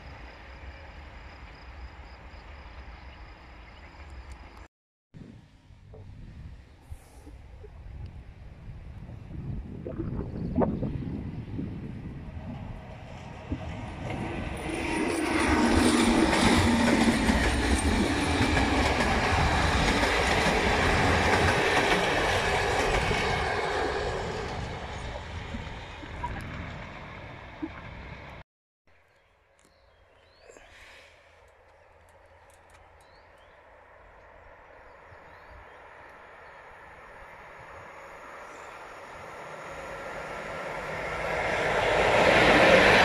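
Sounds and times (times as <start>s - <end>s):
train wheels on rails: 12.9s - 28.4s.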